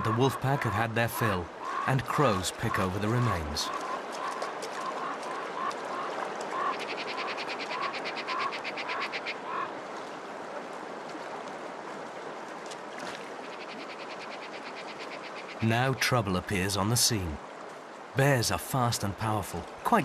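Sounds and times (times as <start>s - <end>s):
steady outdoor hiss: 0.0s - 20.0s
crows calling: 1.5s - 9.7s, 13.4s - 15.6s.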